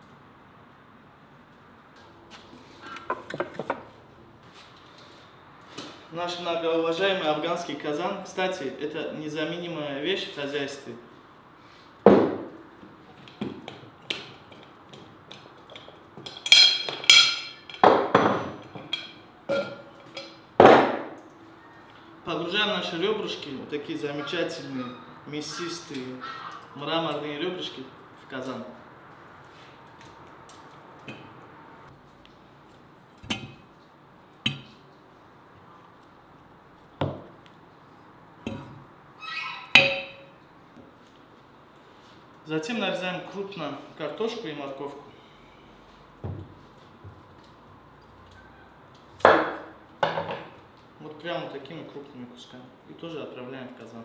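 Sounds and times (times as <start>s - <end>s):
ringing metal clangs: 15.8s - 20.5s, 39.6s - 40.4s.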